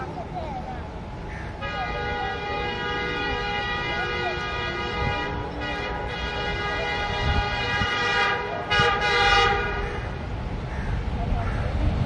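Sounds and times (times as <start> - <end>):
locomotive horn blasts: 1.6 - 10.1.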